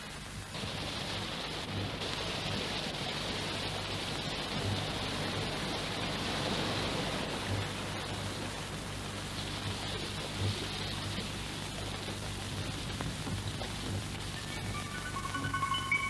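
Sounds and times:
steady hiss: 0.0s - 16.0s
low hum: 9.6s - 16.0s.

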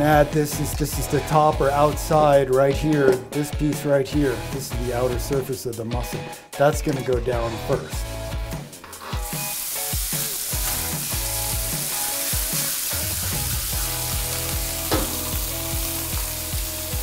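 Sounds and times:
meat sizzling in hot oil: 9.0s - 17.0s.

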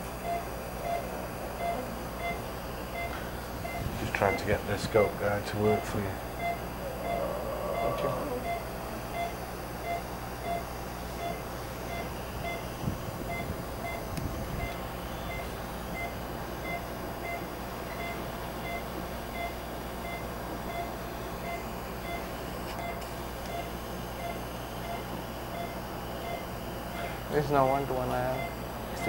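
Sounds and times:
background hum: 0.0s - 29.0s
patient monitor two-note beeps: 0.2s - 7.2s, 7.8s - 12.7s, 13.3s - 29.0s.

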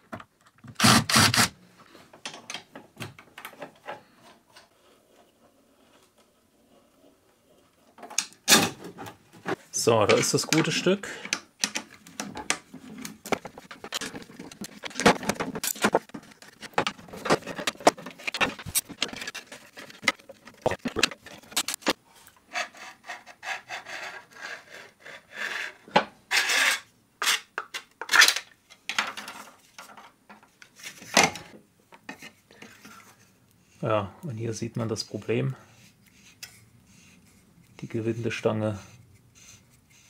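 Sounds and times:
plastic scraping: 11.9s - 22.0s.

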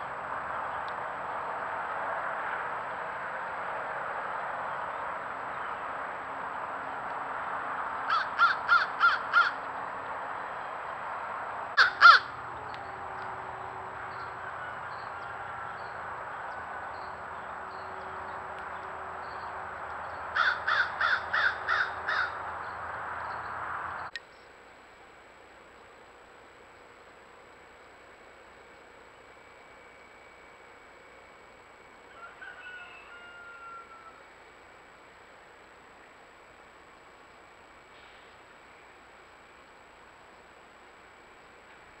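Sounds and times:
crows cawing: 8.0s - 9.7s, 11.8s - 12.4s, 20.3s - 22.6s.

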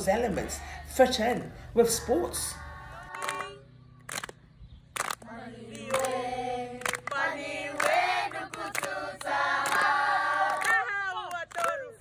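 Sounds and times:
children and women singing: 1.8s - 3.6s, 5.2s - 10.8s.

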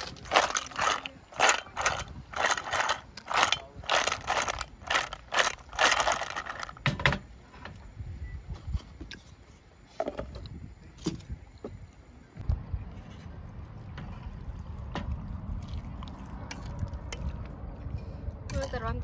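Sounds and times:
clams clattering in a metal pan: 0.0s - 6.8s.

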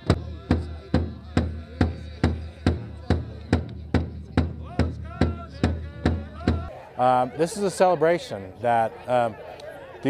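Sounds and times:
large drum steady beat: 0.0s - 6.7s
men singing: 0.0s - 6.8s.

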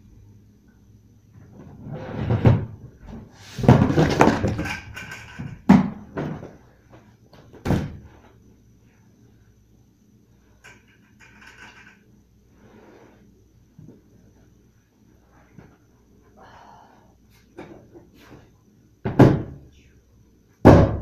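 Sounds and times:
plastic tubs scraping: 1.7s - 5.4s.

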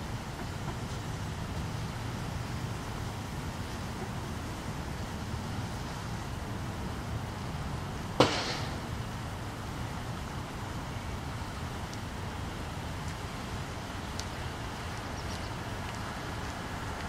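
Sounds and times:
low outdoor rumble: 0.0s - 17.0s
sharp snap: 8.2s - 8.8s.

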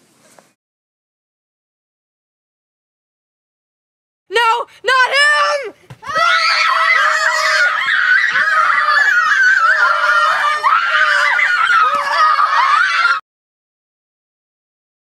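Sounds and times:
child screaming: 4.4s - 13.2s.

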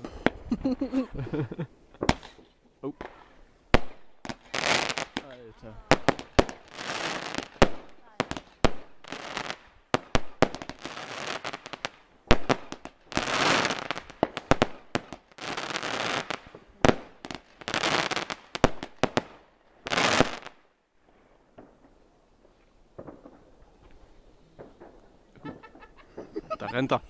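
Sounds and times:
firework crackling: 1.9s - 20.8s
firework bangs: 2.0s - 2.4s, 3.0s - 20.7s, 22.9s - 23.6s, 24.5s - 26.5s.

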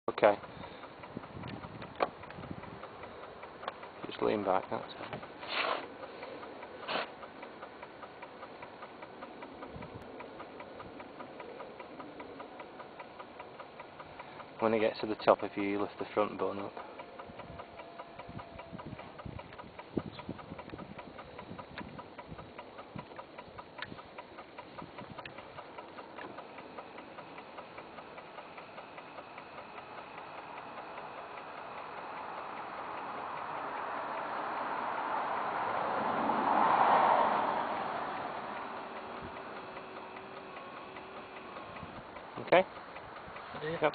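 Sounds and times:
electric seat motor ticking: 0.1s - 43.9s
rushing noise: 32.8s - 39.6s.

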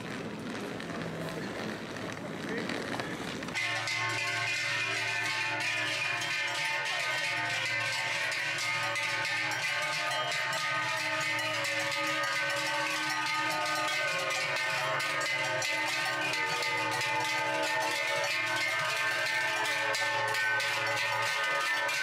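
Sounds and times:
cowbells clanging: 3.5s - 22.0s.

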